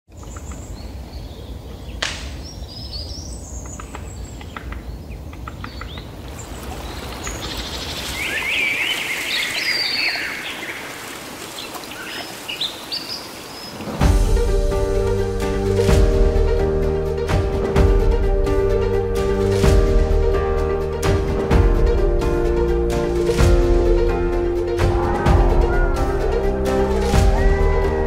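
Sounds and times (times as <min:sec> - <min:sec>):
birds chirping and calling: 0:00.1 - 0:14.0
steady low rush: 0:14.0 - 0:28.0.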